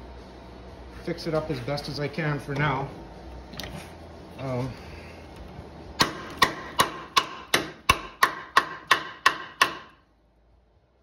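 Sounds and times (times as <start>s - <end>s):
hammer striking metal: 6.0s - 10.0s.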